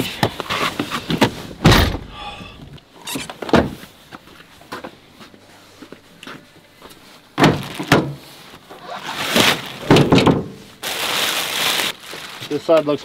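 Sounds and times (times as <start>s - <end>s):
tailgate clunks: 1.6s - 2.2s, 9.8s - 10.6s
plastic sheeting crinkling: 8.8s - 13.0s.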